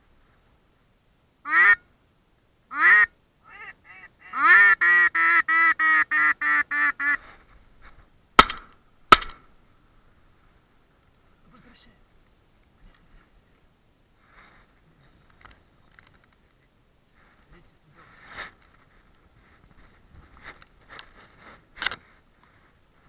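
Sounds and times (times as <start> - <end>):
duck quacking: 1.5 - 1.8, 2.7 - 7.2
shotgun shots: 8.4 - 9.4.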